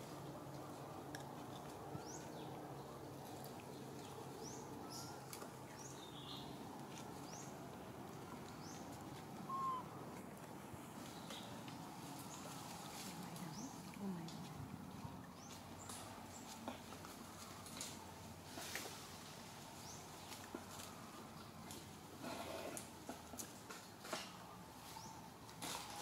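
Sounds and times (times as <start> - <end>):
birds chirping: 1.5 - 16.8
low bird call: 9.4 - 10.0.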